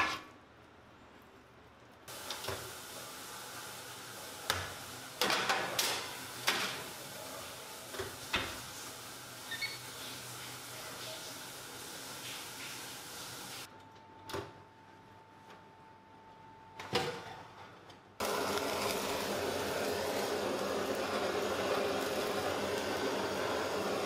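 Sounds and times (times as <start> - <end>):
oven door shutting: 4.5 - 6.9.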